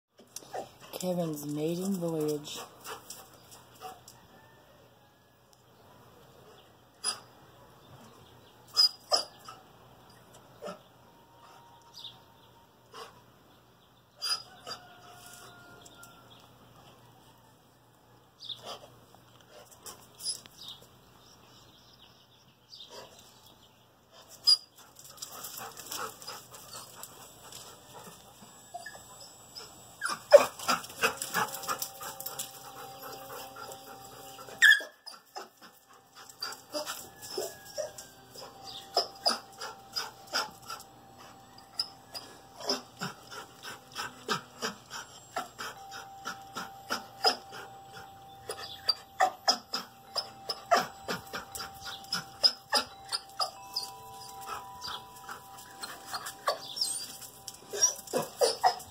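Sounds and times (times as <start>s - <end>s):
dog panting: 2.5s - 4.1s, 24.1s - 37.6s, 38.4s - 58.9s.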